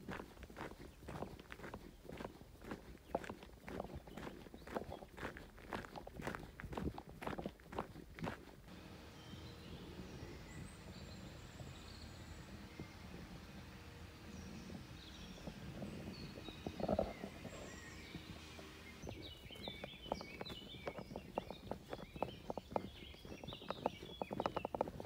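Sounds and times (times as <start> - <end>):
footsteps on forest path: 0.0 - 25.0
birds chirping and singing: 9.0 - 25.0.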